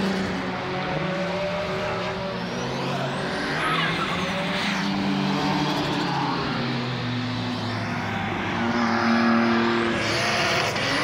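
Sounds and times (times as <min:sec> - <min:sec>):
car engine at high revs: 0:00.0 - 0:11.0.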